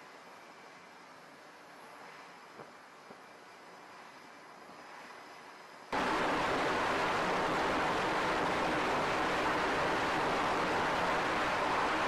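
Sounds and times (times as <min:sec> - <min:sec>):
jet engines roaring: 0:06.0 - 0:12.0.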